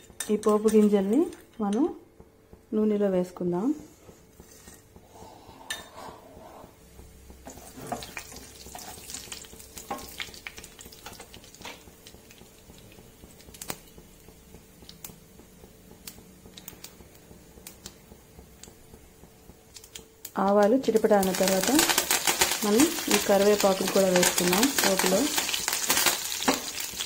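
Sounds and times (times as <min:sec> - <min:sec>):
seeds sizzling in hot oil: 0:07.4 - 0:18.0, 0:19.6 - 0:27.0.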